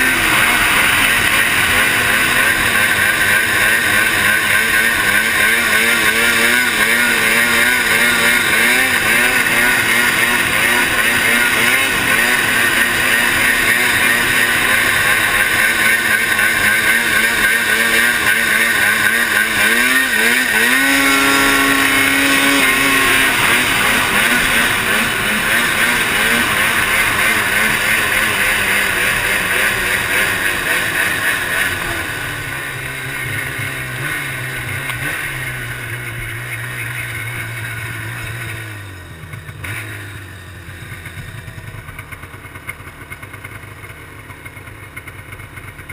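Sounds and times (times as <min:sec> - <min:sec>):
snowmobile engine running hard: 0:00.0 - 0:45.9.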